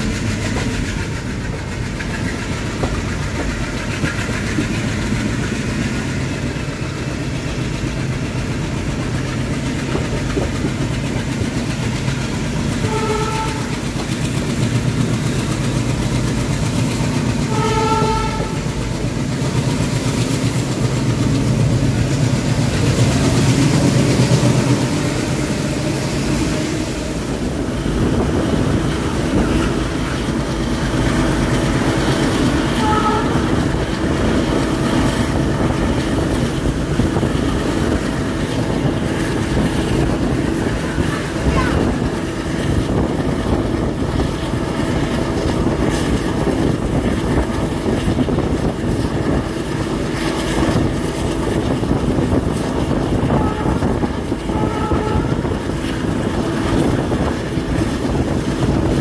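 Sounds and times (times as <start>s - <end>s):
train wheels rumbling on rail: 0.0s - 59.0s
locomotive horn blast: 12.8s - 13.8s, 17.4s - 18.7s, 32.6s - 33.7s, 53.2s - 55.8s.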